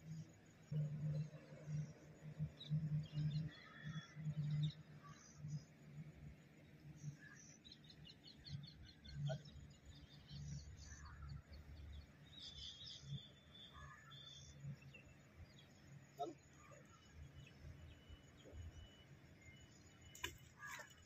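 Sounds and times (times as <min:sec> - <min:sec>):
small birds chirping: 0:06.8 - 0:21.0.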